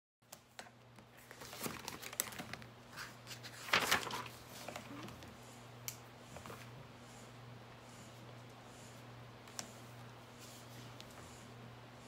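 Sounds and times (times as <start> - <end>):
crinkling and rustling handling: 0.5 - 5.4.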